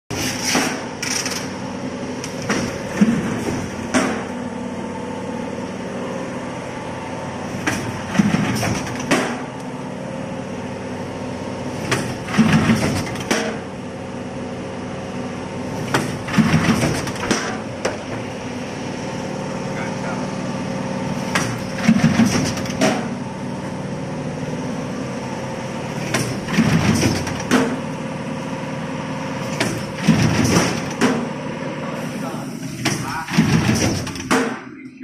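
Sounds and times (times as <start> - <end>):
machine mechanical hum: 0.1 - 35.0.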